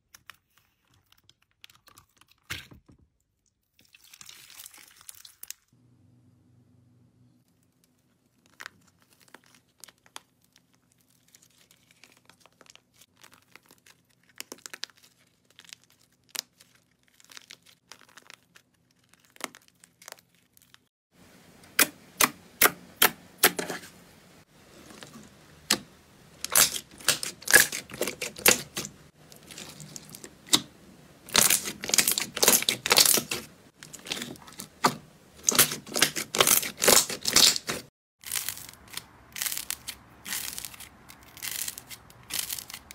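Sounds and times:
slime crackling when squeezed: 0:08.4 - 0:20.9, 0:26.4 - 0:30.7, 0:31.3 - 0:42.9.

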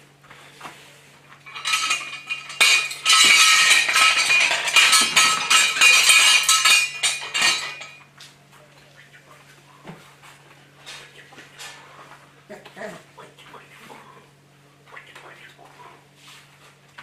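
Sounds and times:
metal pieces clattering: 0:01.5 - 0:08.0.

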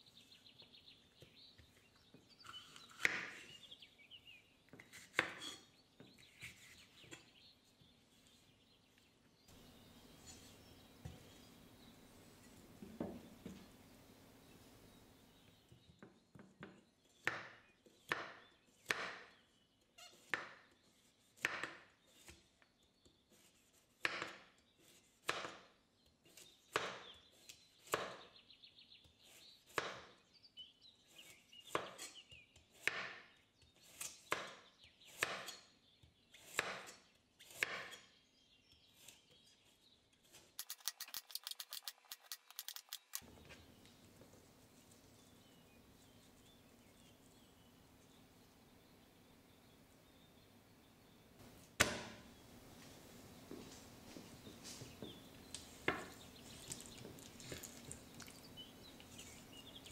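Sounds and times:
fast fine clicks: 0:40.6 - 0:43.2.

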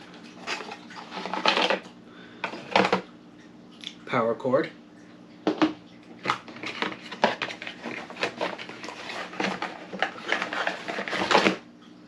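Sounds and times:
packaging rustling: 0:06.2 - 0:11.6.

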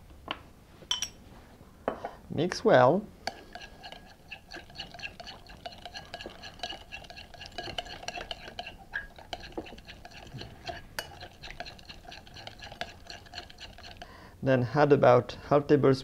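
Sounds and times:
metal clinking against glass: 0:00.9 - 0:01.2
spoon beating mixture in bowl: 0:03.2 - 0:14.1.

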